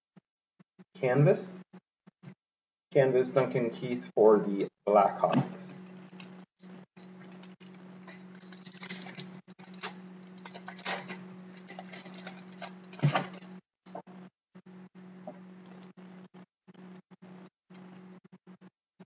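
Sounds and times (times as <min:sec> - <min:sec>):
steady low hum: 0:03.0 - 0:18.1
cards and wrapper crinkling: 0:07.0 - 0:13.5.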